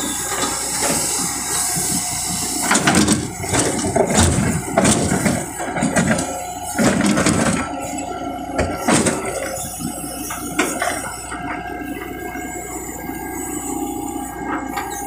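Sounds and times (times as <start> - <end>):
excavator engine running: 0.0 - 15.0
metal knocks and clanks: 2.7 - 7.8.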